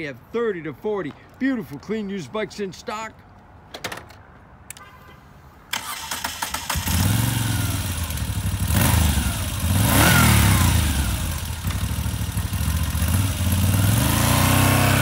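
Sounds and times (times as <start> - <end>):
electric starter cranking: 5.7 - 8.0
motorcycle engine idling and revving: 5.9 - 15.0.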